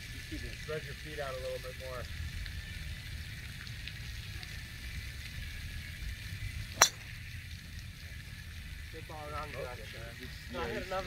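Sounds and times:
low rumble and hiss: 0.0s - 11.0s
golf club hitting ball: 6.8s - 7.3s.

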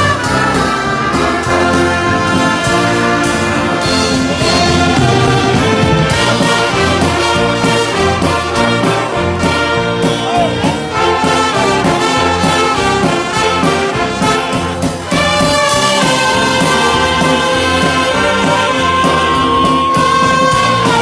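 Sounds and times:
live band playing gospel music: 0.0s - 21.0s.

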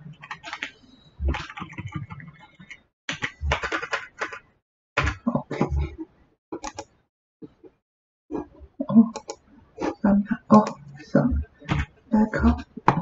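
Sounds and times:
computer keyboard typing: 0.1s - 5.4s, 6.6s - 6.9s, 9.1s - 9.4s.

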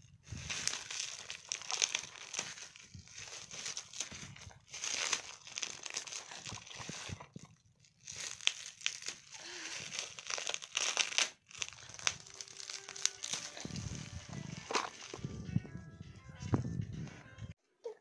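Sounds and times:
plastic packaging crinkling: 0.0s - 15.4s.

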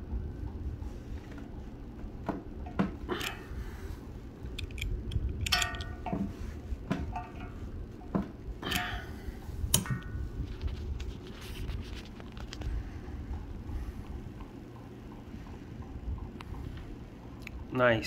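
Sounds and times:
metallic clicks and clinks: 4.6s - 6.2s.

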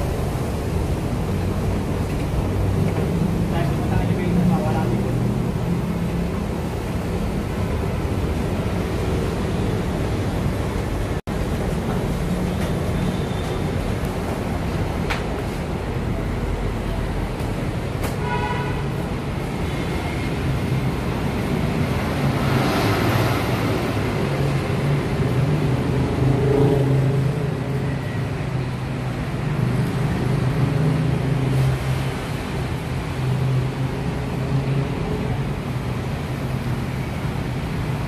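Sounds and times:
road traffic noise: 0.0s - 38.0s.

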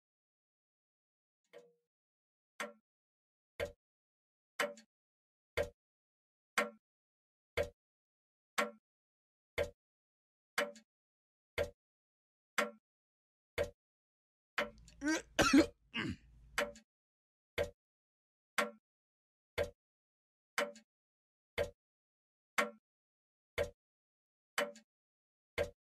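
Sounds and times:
man's throaty voice: 15.0s - 16.2s.

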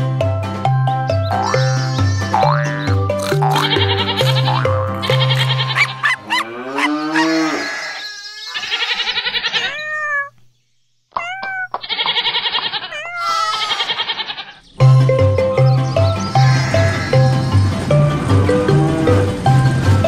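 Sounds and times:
children's song music: 0.0s - 6.2s, 14.8s - 20.0s
cartoon farm animal calls: 1.3s - 10.4s, 11.1s - 14.7s, 16.2s - 17.6s
cow mooing: 3.2s - 8.0s.

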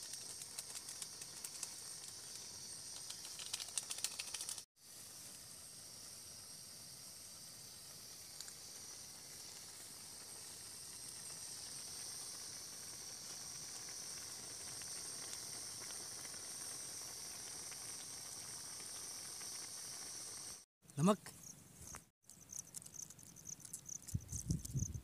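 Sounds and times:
tiny ticks and pops: 0.0s - 4.6s, 8.3s - 8.7s, 13.2s - 20.5s, 21.8s - 25.0s
gas stove burner hissing: 0.0s - 20.7s
pot boiling: 0.0s - 20.7s.

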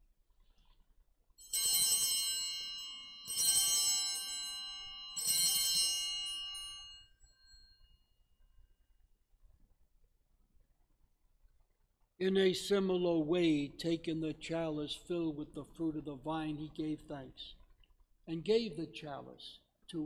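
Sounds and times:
altar bells ringing: 1.4s - 8.1s.

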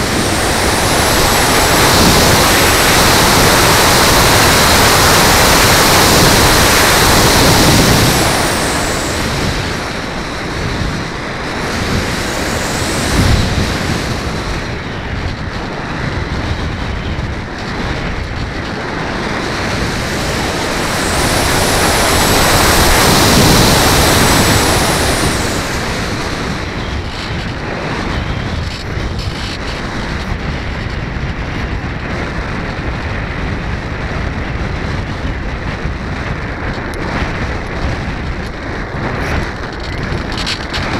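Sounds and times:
electric motor whine: 0.0s - 30.3s
wind rushing over camera: 0.0s - 40.9s.

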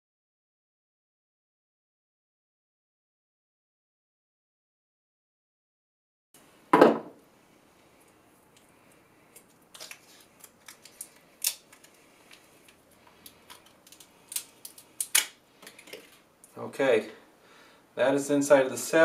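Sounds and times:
foil pouch crinkling: 9.4s - 16.2s
sharp clicks and crackles: 9.4s - 16.6s.

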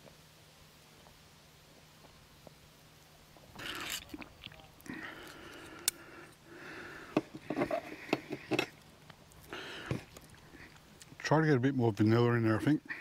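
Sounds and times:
small bottle handled: 3.5s - 5.9s, 7.1s - 11.2s
drinking and swallowing: 3.5s - 11.2s
breathing out: 4.8s - 8.5s, 9.4s - 10.8s.

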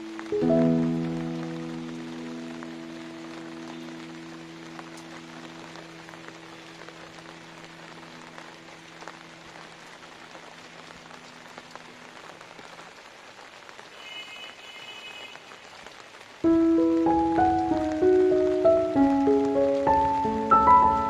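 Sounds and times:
heavy rain hiss: 0.0s - 21.0s
single raindrop ticks: 4.8s - 5.8s.

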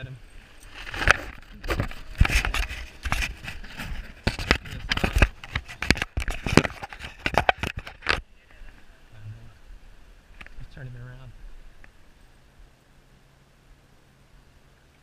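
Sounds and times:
fingers rubbing on camera: 0.7s - 8.2s.

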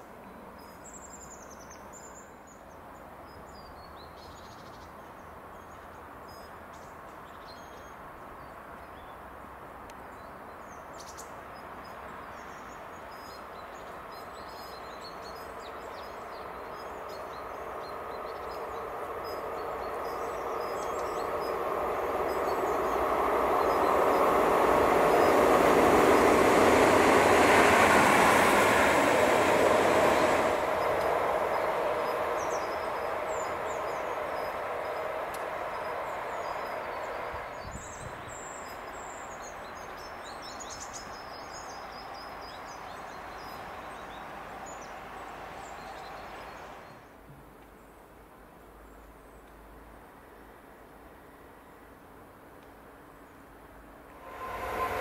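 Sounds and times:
electric locomotive passing: 0.0s - 47.2s, 49.7s - 55.0s
birds chirping: 12.3s - 47.0s.

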